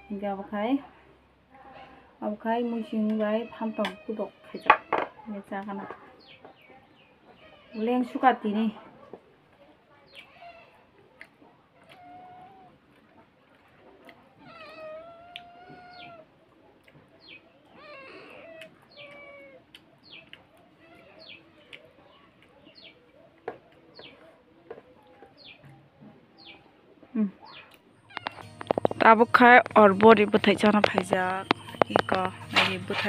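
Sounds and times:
birds chirping: 1.8 - 33.0
cat meowing: 11.9 - 12.7, 14.4 - 16.3, 17.7 - 19.7, 28.1 - 28.5.

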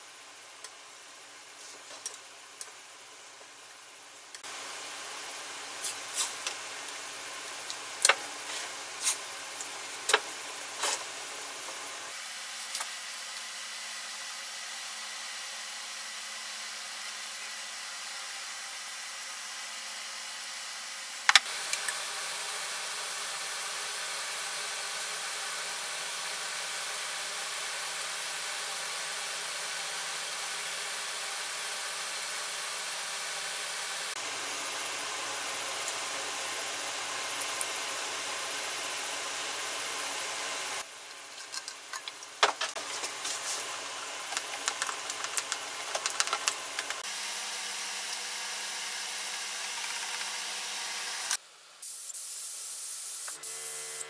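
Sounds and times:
steady hiss: 46.4 - 54.0.

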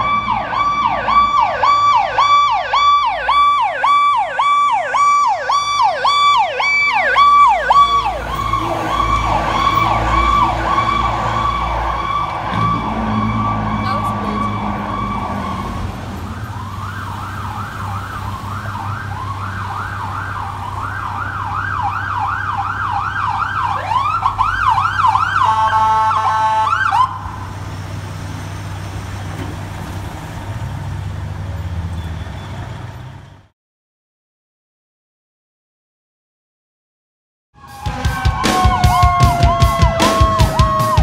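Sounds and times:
heavy engine rumble: 0.0 - 3.3, 5.6 - 33.5
electronic siren: 0.0 - 27.4, 37.6 - 41.0
vehicle horn blast: 25.4 - 26.9.

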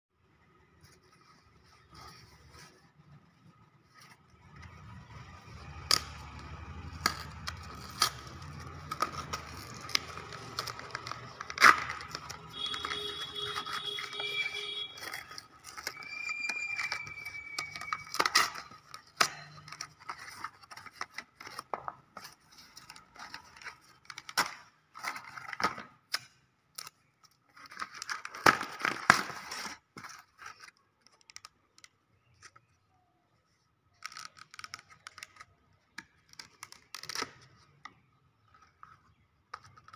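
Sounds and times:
cardboard being torn open: 4.4 - 14.3
thin squeals: 12.4 - 19.8.

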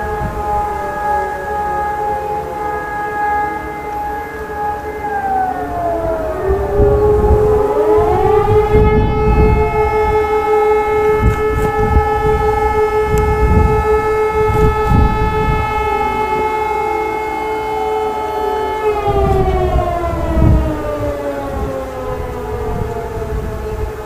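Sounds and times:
civil defence sirens: 0.0 - 24.0.

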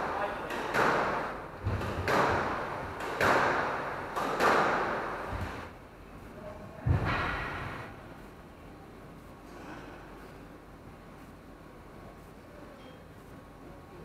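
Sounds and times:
squash ball hits echoing: 0.0 - 5.6.

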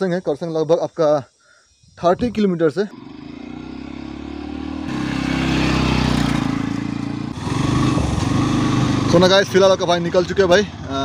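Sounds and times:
motorcycle engine running: 2.9 - 11.0.

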